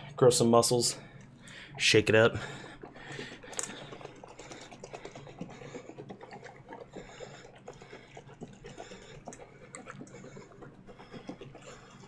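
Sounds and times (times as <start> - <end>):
liquid sloshing in shaken jug: 0.8 - 12.0.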